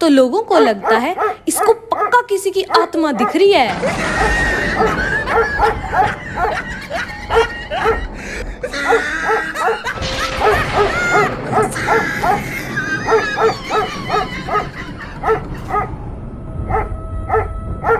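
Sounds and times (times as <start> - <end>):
dog barking: 0.6 - 3.6.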